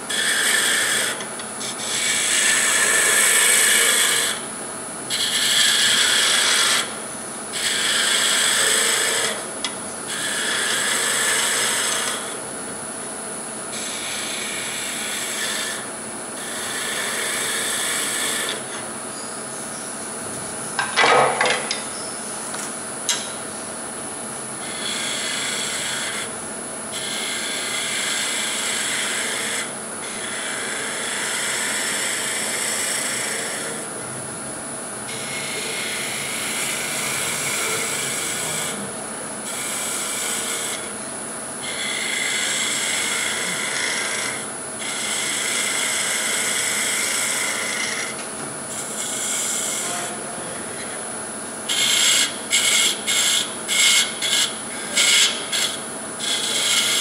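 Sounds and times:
woodturning tool scraping wood: 0:00.0 - 0:04.5, 0:05.1 - 0:12.4, 0:13.7 - 0:18.9, 0:24.6 - 0:26.3, 0:26.9 - 0:34.0, 0:35.1 - 0:41.0, 0:41.6 - 0:57.0.

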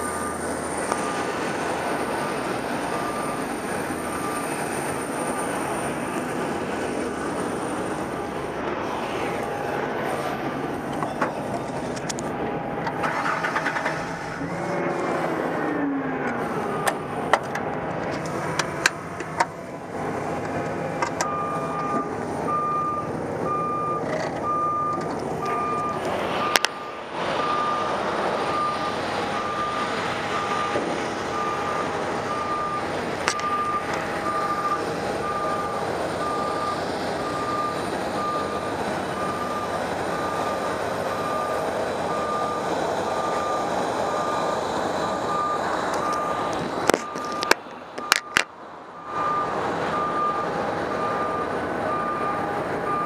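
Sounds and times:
vehicle engine running: 0:00.0 - 0:53.0
back-up alarm beeping: 0:02.2 - 0:04.6, 0:21.2 - 0:48.4, 0:49.0 - 0:53.0.

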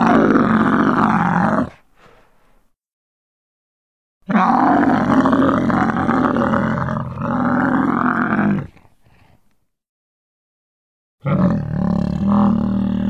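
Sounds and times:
loud low creature roar: 0:00.0 - 0:01.8, 0:04.2 - 0:08.9, 0:11.2 - 0:13.0.

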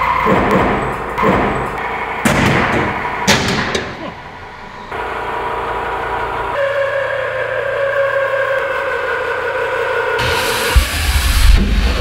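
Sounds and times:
sharp machine bangs: 0:00.2 - 0:04.1.

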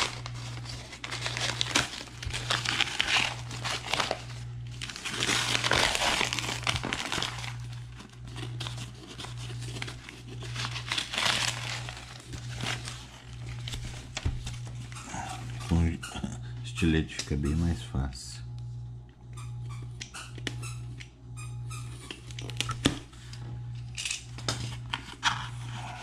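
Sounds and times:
paper crumpling and tearing: 0:00.0 - 0:15.7
steady low hum: 0:00.0 - 0:26.0.

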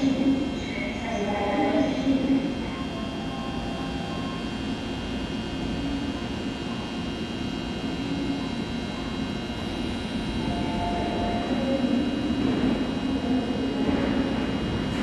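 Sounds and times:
electric train droning: 0:00.0 - 0:15.0
high whining tones: 0:10.2 - 0:13.3.

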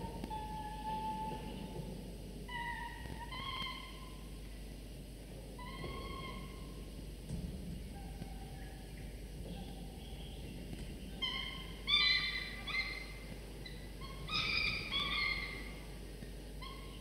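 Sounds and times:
falcon chicks begging calls: 0:11.1 - 0:15.9.

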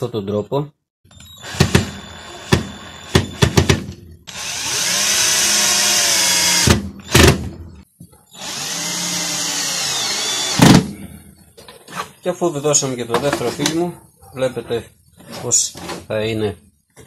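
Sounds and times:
cordless drill driving screws: 0:01.1 - 0:03.7, 0:04.3 - 0:07.3, 0:08.3 - 0:10.8.

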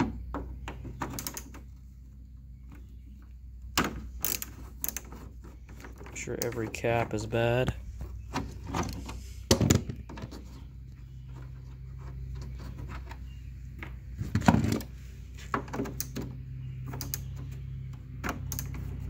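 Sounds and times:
steady low hum: 0:00.0 - 0:19.0
objects clattering on wooden workbench: 0:13.8 - 0:16.3.

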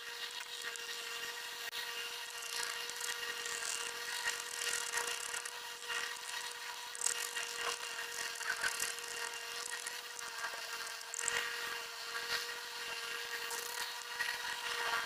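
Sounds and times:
steady hum: 0:00.0 - 0:15.0
knife scraping pencil: 0:02.3 - 0:11.6.

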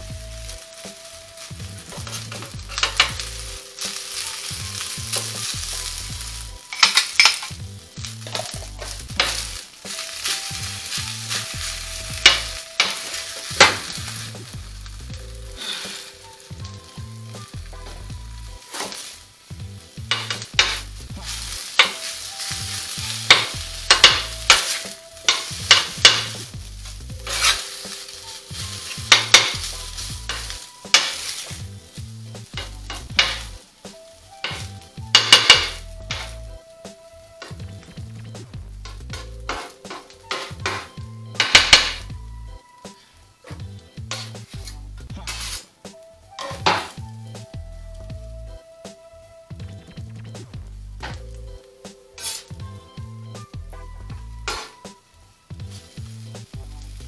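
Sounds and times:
rice sizzling on a griddle: 0:00.0 - 0:57.0
metal spatula scraping and clacking: 0:01.0 - 0:14.6, 0:18.6 - 0:19.2, 0:20.0 - 0:31.6, 0:32.4 - 0:33.6, 0:34.4 - 0:36.4, 0:38.9 - 0:42.0, 0:43.5 - 0:45.7, 0:46.4 - 0:47.0, 0:52.2 - 0:52.6, 0:54.5 - 0:54.8.

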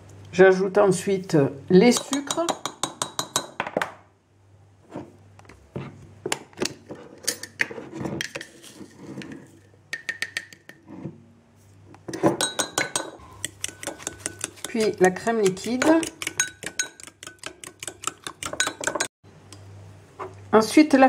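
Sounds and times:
spoons clinking on mug and jar: 0:12.4 - 0:19.1.

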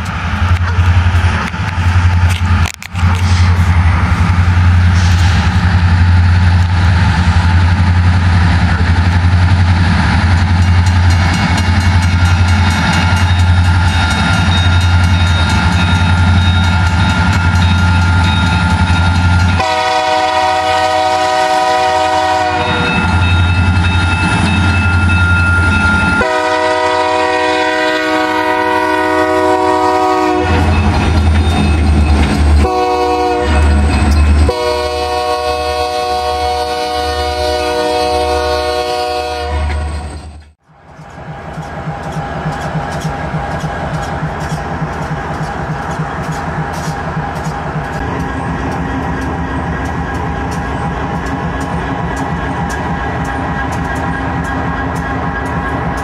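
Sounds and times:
diesel locomotive engine drone: 0:00.0 - 0:56.0
locomotive air horn blasts: 0:19.6 - 0:23.1, 0:26.1 - 0:30.8, 0:32.6 - 0:33.8, 0:34.5 - 0:39.9.

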